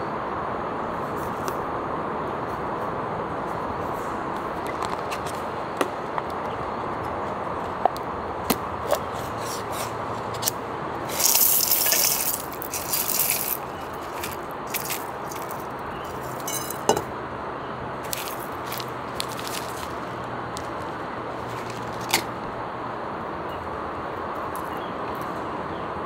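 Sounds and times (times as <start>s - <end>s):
steady background hiss: 0.0s - 26.0s
foil crinkling: 11.1s - 16.7s, 18.0s - 22.2s
foil seal tearing: 18.1s - 20.8s.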